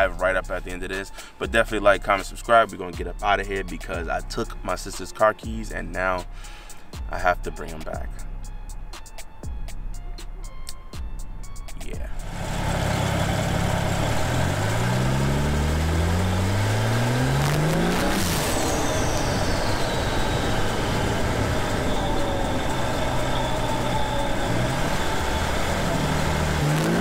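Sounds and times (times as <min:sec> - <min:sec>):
high whine: 0:11.8 - 0:27.0
car engine accelerating: 0:12.0 - 0:27.0
turbo whoosh: 0:12.1 - 0:27.0.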